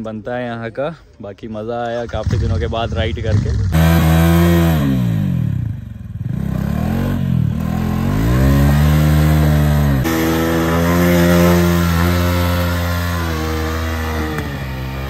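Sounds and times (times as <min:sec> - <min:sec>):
motorcycle engine revving: 0:02.0 - 0:15.0
motorcycle burnout at high revs: 0:02.1 - 0:15.0.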